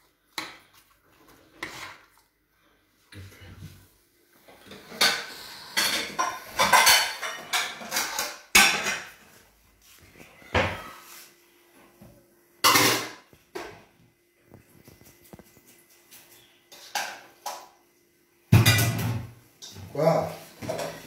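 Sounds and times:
dishes and utensils clattering: 4.5s - 9.2s, 12.6s - 13.8s, 16.3s - 17.8s, 18.5s - 21.0s.

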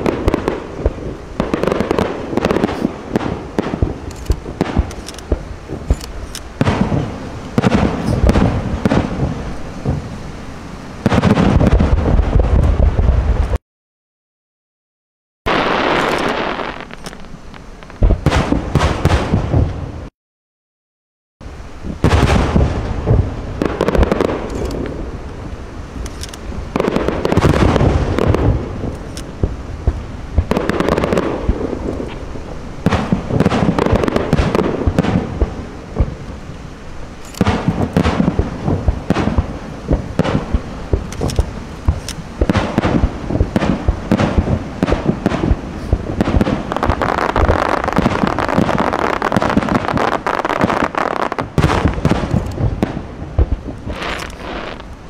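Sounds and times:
firework shells bursting: 15.5s - 19.6s, 37.2s - 55.0s.

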